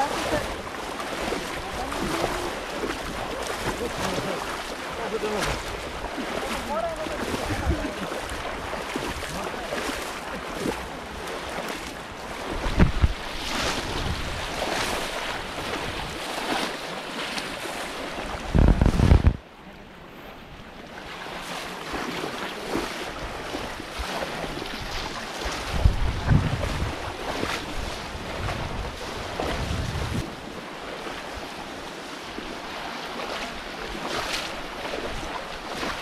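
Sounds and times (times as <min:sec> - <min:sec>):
muddy water splashing: 0:00.0 - 0:36.0
wind buffeting microphone: 0:12.0 - 0:16.6, 0:18.2 - 0:19.5, 0:23.2 - 0:30.5.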